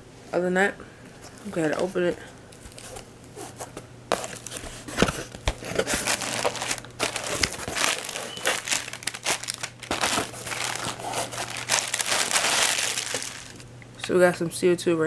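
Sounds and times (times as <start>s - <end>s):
plastic packing crinkling: 2.5s - 3.5s, 4.1s - 13.7s.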